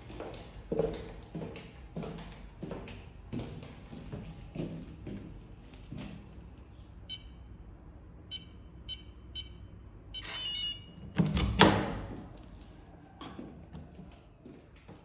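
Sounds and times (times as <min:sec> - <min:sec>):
keypad beeps: 0:07.1 - 0:07.4, 0:08.3 - 0:11.0
door handle and latch clunks: 0:11.1 - 0:12.0.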